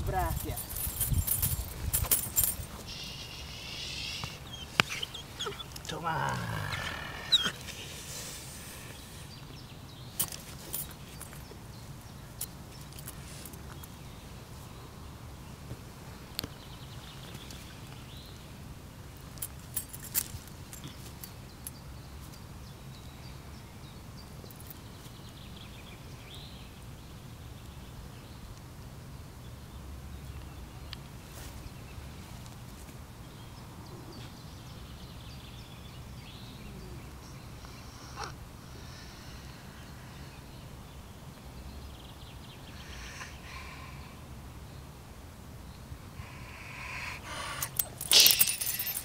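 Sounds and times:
faint high chirps: 0:02.7 - 0:05.8.

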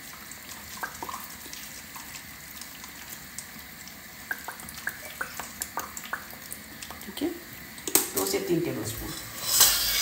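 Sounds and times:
small drip ticks: 0:00.7 - 0:07.2.

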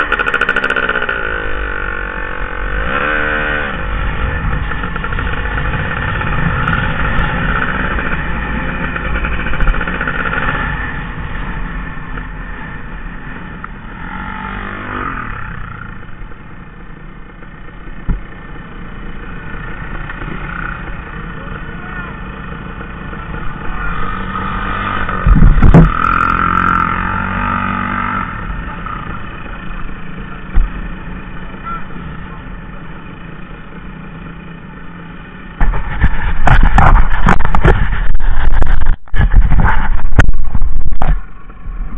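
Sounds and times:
dirt bike engine idling: 0:00.0 - 0:02.8, 0:03.8 - 0:26.8
loud rumble: 0:17.6 - 0:32.3, 0:34.3 - 0:41.9.

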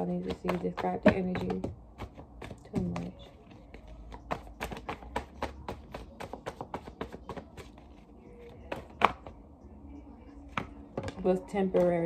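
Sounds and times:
cards being shuffled: 0:01.4 - 0:09.3.

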